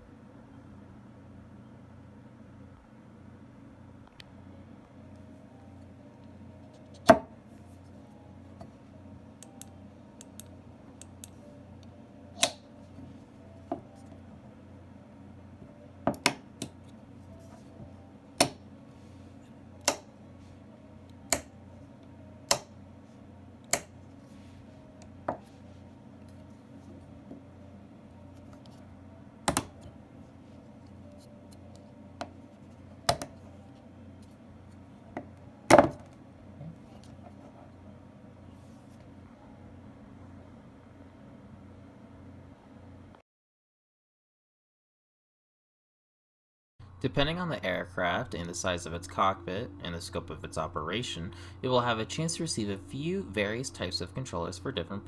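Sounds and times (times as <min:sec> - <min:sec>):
sharp mechanical switch clicks: 0:12.4 - 0:12.6, 0:19.8 - 0:20.1, 0:21.3 - 0:21.5, 0:22.5 - 0:22.7.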